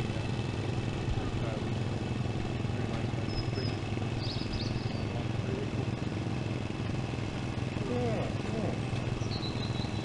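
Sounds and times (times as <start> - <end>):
engines droning: 0.0 - 10.0
high bird chirps: 3.3 - 5.1, 9.2 - 10.0.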